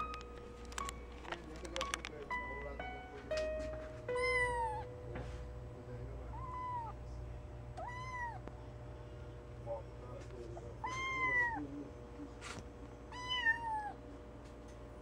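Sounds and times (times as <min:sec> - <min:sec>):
kitten meowing: 0:04.2 - 0:04.9, 0:06.3 - 0:07.0, 0:07.8 - 0:08.5, 0:10.8 - 0:11.6, 0:13.1 - 0:14.0.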